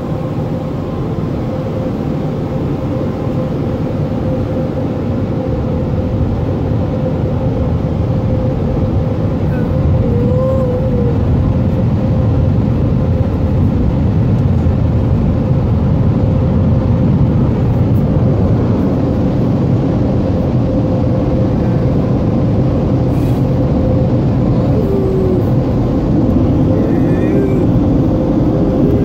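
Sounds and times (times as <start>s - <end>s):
steady hum: 0.0s - 29.0s.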